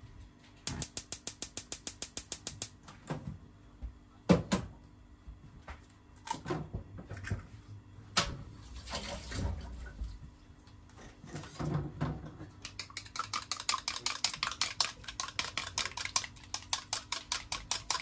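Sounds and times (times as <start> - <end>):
gas stove igniter clicking: 0.7 - 2.8
kitchen clatter and knocks: 11.2 - 12.6.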